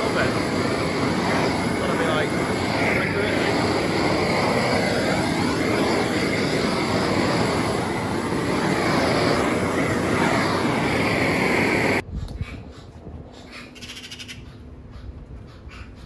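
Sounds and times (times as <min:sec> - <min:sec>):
blow lamp flame hissing: 0:00.0 - 0:12.0.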